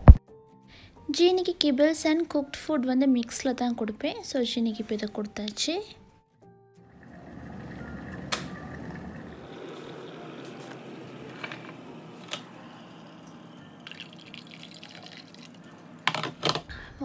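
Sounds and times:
water pouring into a glass: 0:06.9 - 0:16.0.

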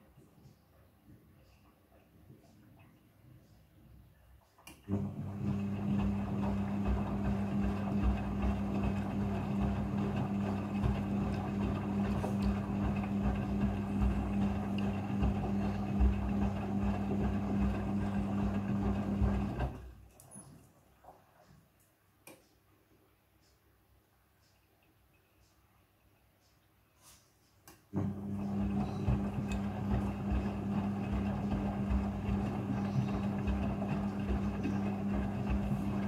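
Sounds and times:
washing machine hum: 0:04.8 - 0:21.8, 0:27.9 - 0:36.0.

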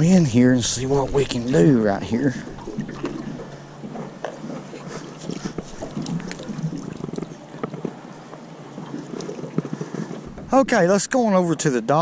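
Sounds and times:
water splashes: 0:00.7 - 0:08.0.

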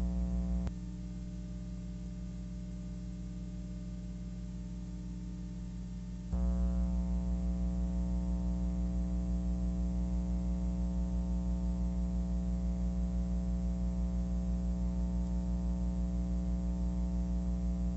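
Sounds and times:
steady hum with overtones: 0:00.0 - 0:17.9.

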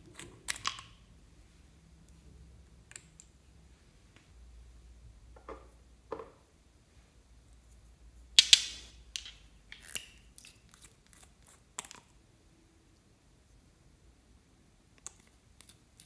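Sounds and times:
bottle caps clicking and clacking: 0:08.4 - 0:10.2.

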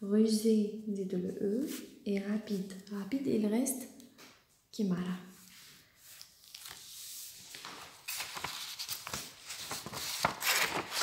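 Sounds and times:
paper rustling and crinkling: 0:05.4 - 0:11.0.

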